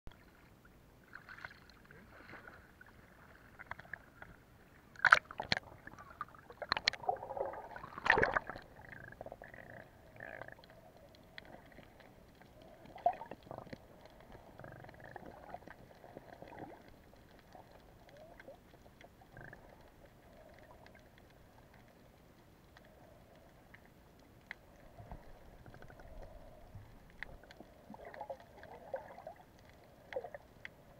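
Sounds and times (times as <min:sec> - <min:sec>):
muffled water sloshing: 0:00.1 - 0:19.2.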